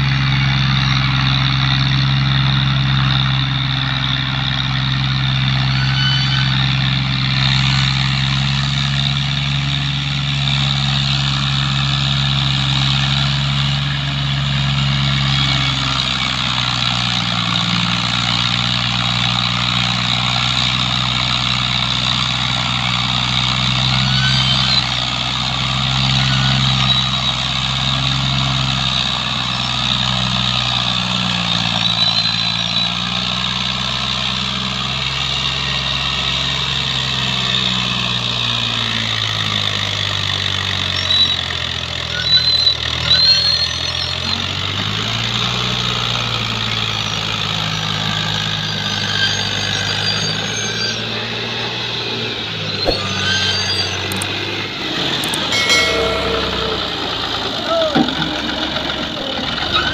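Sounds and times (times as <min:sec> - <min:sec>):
tractor diesel engine labouring: 0:00.0 - 0:59.9.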